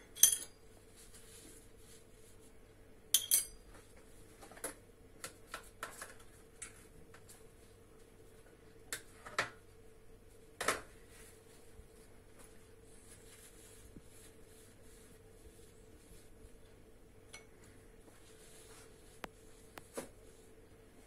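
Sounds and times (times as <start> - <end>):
metal moulds clinking on stone: 0.0 - 0.6, 3.2 - 3.7.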